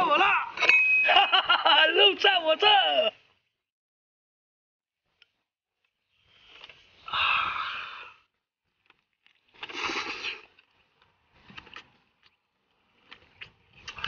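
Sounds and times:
breathy mouth eating sounds: 9.3 - 10.9.

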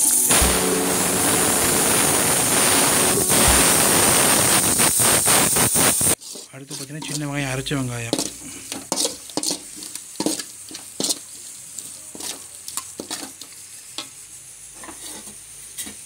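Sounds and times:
masala sizzling in oil: 0.0 - 16.0
metal scraping against pan: 6.2 - 16.0.

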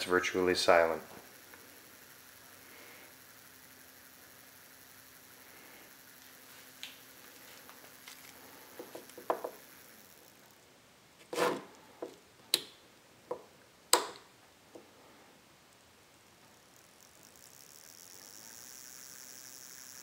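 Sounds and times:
motor humming: 0.0 - 10.7, 16.3 - 20.0
knob and switch clicks: 13.9 - 14.2.

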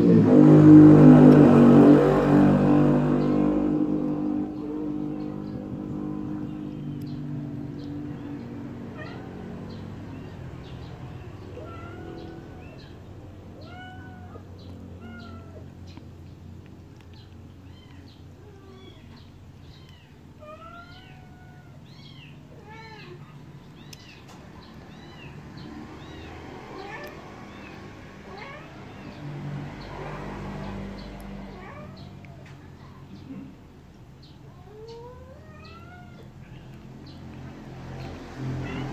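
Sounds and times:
kittens mewing: 3.9 - 16.2, 16.9 - 38.9.

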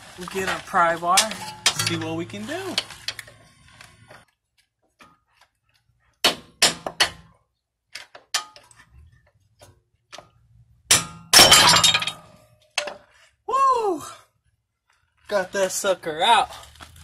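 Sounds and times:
hammer striking metal pry bar: 6.2 - 7.3, 10.9 - 12.2.

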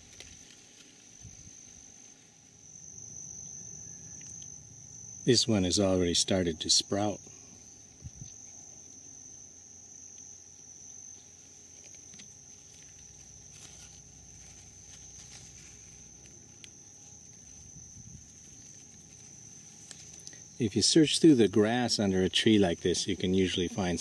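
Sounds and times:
faint rustles: 0.0 - 2.6, 10.6 - 20.7
crickets trilling: 0.0 - 24.0.

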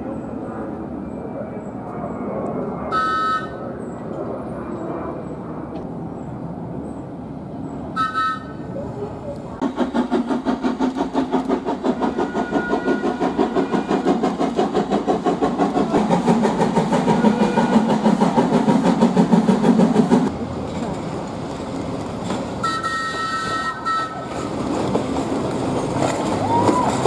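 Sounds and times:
train whistle: 2.9 - 3.6, 8.0 - 8.6, 12.0 - 14.2, 17.1 - 18.0, 22.6 - 24.3
rolling stock rumble: 5.6 - 27.0
steam locomotive chuffing: 9.6 - 21.0.

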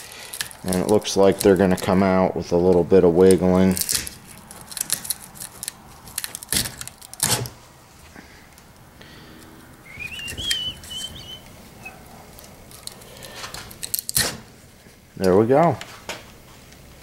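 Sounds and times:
high wavering squeak: 9.3 - 12.0.

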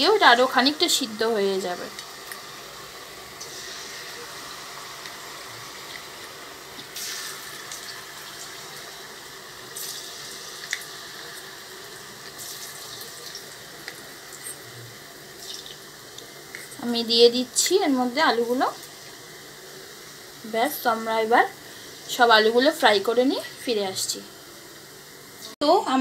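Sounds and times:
potatoes sizzling in hot oil: 0.0 - 25.8
oil crackles: 9.6 - 16.9.

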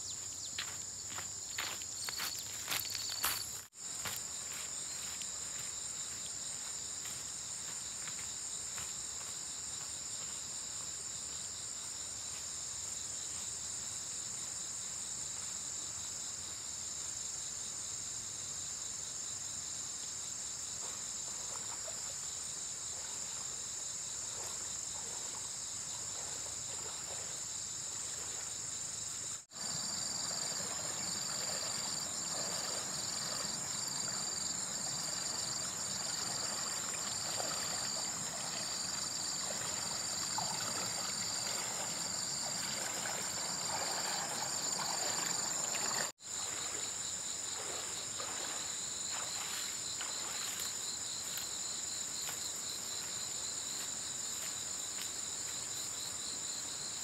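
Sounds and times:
insects chirring: 0.0 - 57.0.

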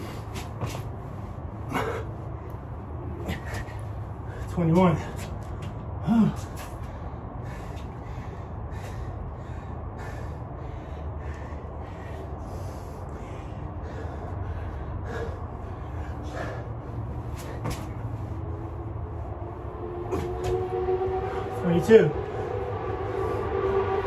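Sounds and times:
man breathing hard: 0.0 - 20.6
low steady hum: 0.0 - 24.0
man grunting: 6.0 - 6.5.

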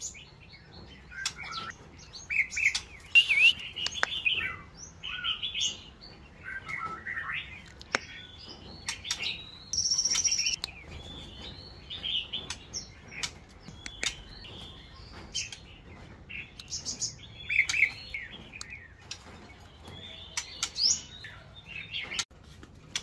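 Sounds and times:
sharp bird clicks: 2.6 - 4.5, 8.9 - 10.8
bird singing whistled phrases: 3.0 - 5.4, 9.7 - 10.6.

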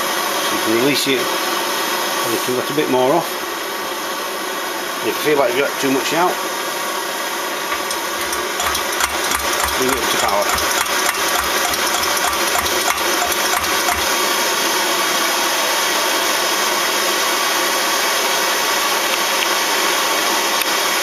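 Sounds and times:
stove burner roaring: 7.6 - 15.1
soft pump thumps: 7.7 - 14.1.

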